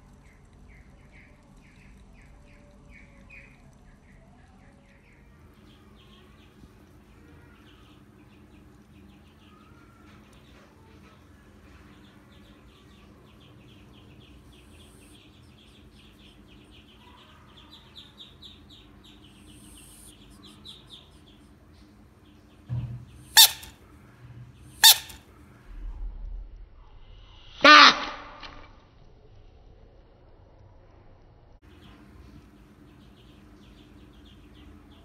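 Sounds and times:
faint high chirping: 0:00.2 - 0:23.8, 0:24.8 - 0:25.2.

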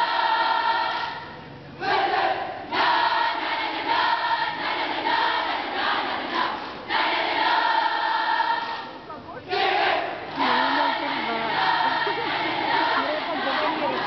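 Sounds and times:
crowd cheering in unison: 0:00.0 - 0:14.0.

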